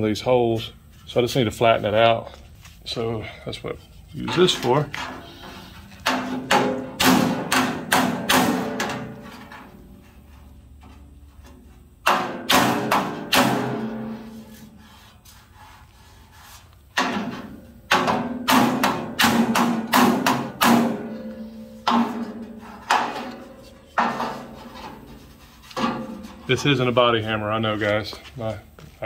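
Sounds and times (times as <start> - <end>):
hammer blows on sheet metal: 6.0 - 9.7, 12.0 - 15.0, 17.0 - 26.7.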